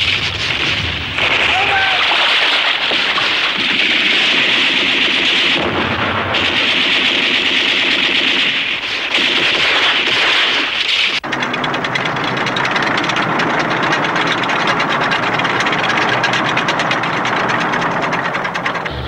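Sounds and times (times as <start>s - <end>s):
shell bursts: 0.0s - 11.3s
machine-gun fire: 0.0s - 19.0s.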